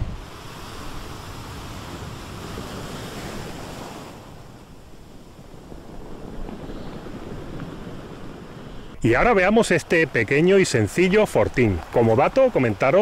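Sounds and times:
wind on microphone: 0.0s - 12.4s
sea surf washing onto shore: 0.0s - 13.0s.

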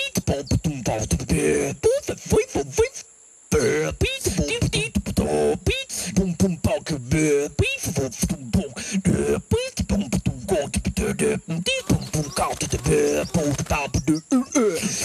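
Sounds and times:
cartoon creature vocal chatter: 3.6s - 15.0s.

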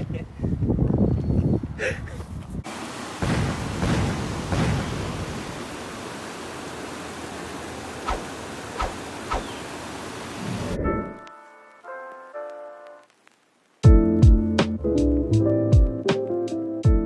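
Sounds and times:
stream rushing over rocks: 2.7s - 10.8s.

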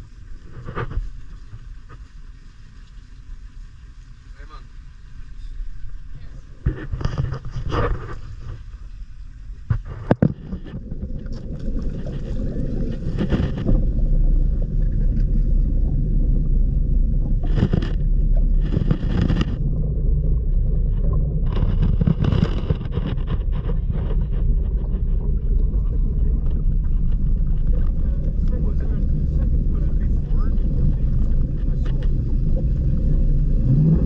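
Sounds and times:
boat motor rumbling: 0.0s - 34.0s
water sloshing by hull: 0.0s - 34.0s
voices: 25.7s - 33.1s.

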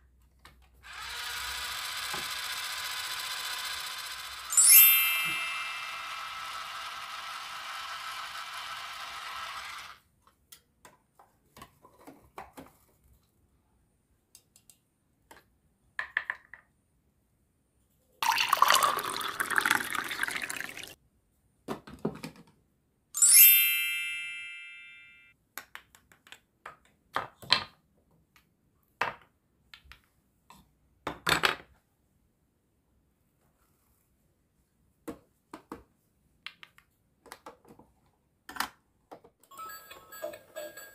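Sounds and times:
toy chime ringing: 3.8s - 7.0s, 23.2s - 25.3s, 39.5s - 40.9s
liquid pouring into cup: 18.2s - 21.0s.

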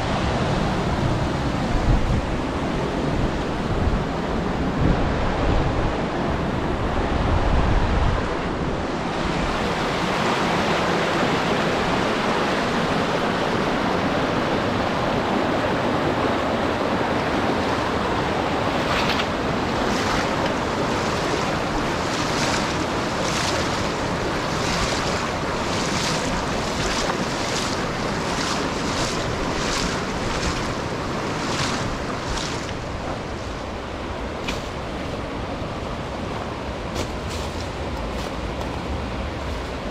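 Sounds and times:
wind buffeting microphone: 0.0s - 10.8s, 11.4s - 37.3s
river flowing: 0.0s - 39.9s
scuffing footsteps: 24.6s - 30.8s.

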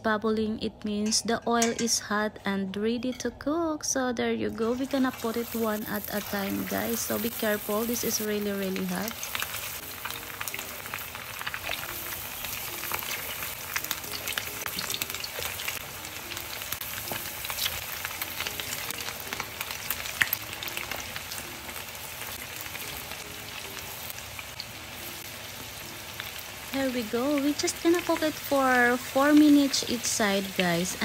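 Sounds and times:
meat deep-frying in oil: 4.6s - 31.0s.

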